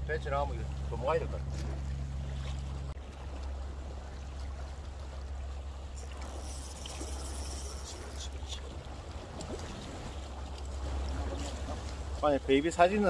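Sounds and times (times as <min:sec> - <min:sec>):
boat engine drone: 0:00.0 - 0:13.0
water washing over rocks: 0:05.9 - 0:12.3.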